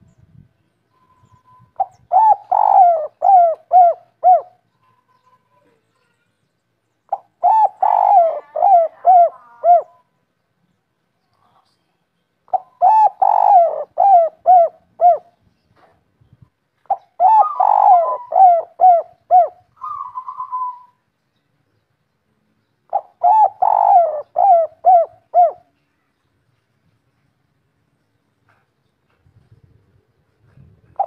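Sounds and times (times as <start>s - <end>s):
dove cooing: 1.8s - 4.6s, 7.1s - 10.0s, 12.5s - 15.4s, 16.9s - 21.0s, 22.9s - 25.7s, 30.5s - 31.0s.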